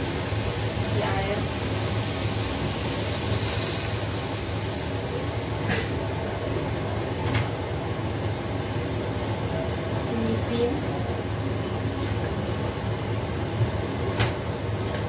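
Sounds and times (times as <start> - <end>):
cabbage hissing in a wok: 0.0 - 6.4
gas burner hum: 0.0 - 15.0.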